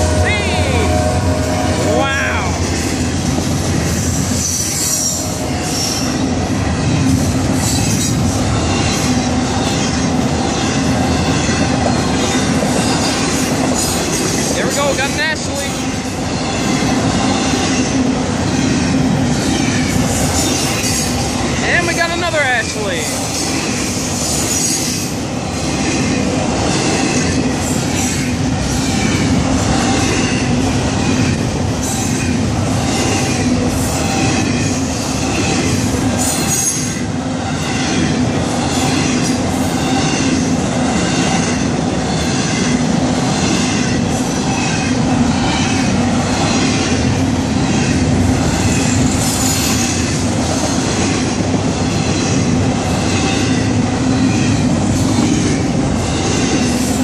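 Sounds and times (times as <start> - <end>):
crossing bells ringing: 0.0 - 3.6, 14.4 - 17.1
train wheels rumbling on rails: 0.0 - 57.0.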